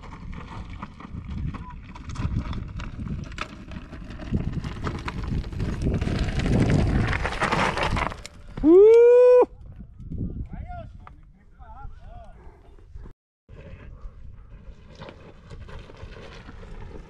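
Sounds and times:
bike tyres crunching over rock: 0:00.0 - 0:08.9, 0:14.5 - 0:17.0.

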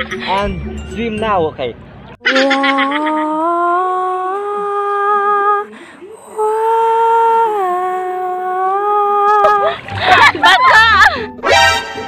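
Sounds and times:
person humming long notes: 0:02.2 - 0:09.7.

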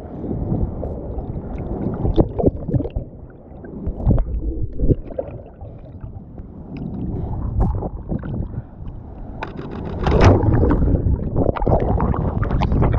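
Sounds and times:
seawater sloshing and splashing: 0:09.4 - 0:12.9.

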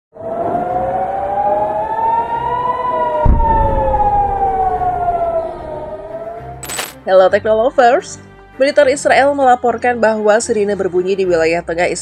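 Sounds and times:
air-raid siren wailing: 0:00.1 - 0:06.8
low thump: 0:03.2 - 0:05.8.

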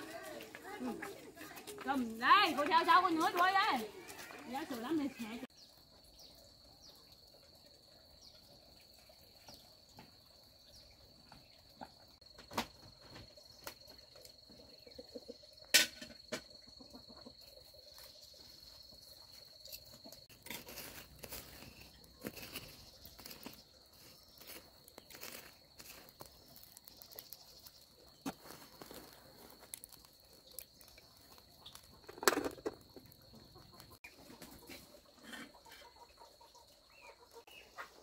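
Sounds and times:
rustling: 0:20.2 - 0:32.6.

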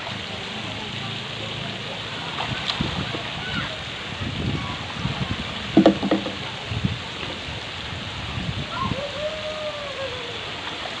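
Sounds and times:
fountain jets splashing into pool: 0:00.0 - 0:11.0
child shouting: 0:03.4 - 0:03.8, 0:08.7 - 0:10.4.

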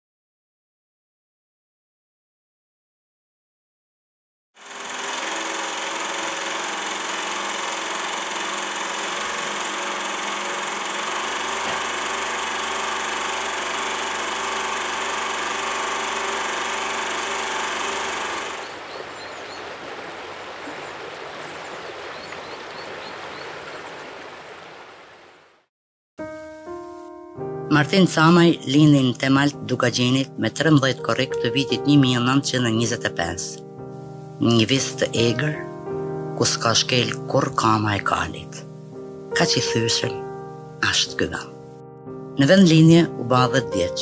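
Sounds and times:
film projector whirring: 0:04.6 - 0:18.8.

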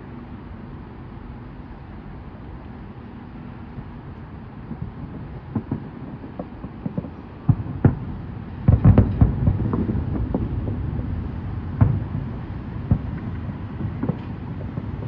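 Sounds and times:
fireworks pops and bangs: 0:03.7 - 0:15.0.

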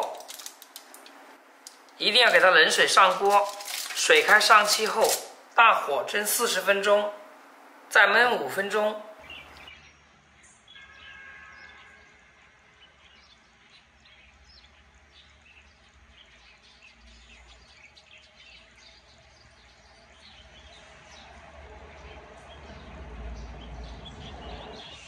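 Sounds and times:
small birds chirping: 0:07.9 - 0:12.0, 0:12.7 - 0:25.0.

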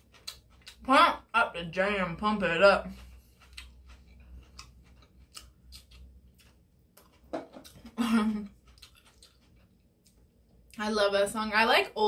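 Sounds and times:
person clearing throat: 0:07.9 - 0:08.4.

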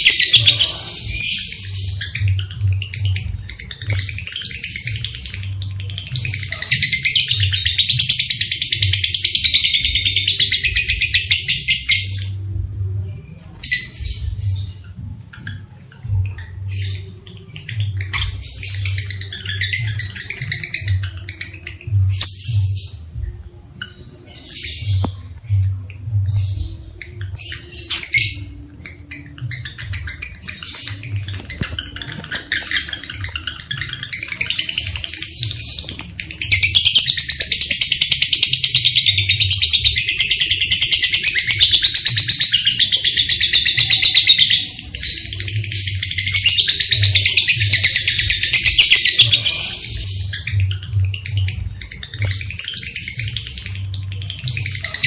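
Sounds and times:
low rhythmic pulsing: 0:00.0 - 0:54.9
lovebird chattering: 0:26.3 - 0:55.0.

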